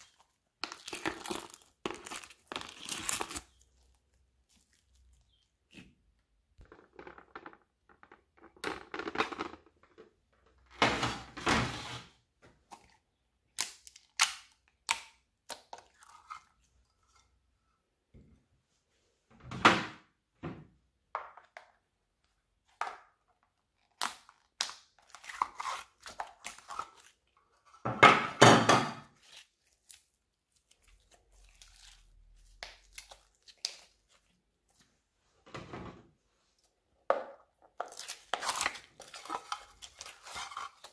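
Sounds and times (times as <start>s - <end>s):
slime squelching: 0.0s - 9.8s, 23.6s - 27.6s, 29.2s - 34.9s, 36.5s - 40.9s.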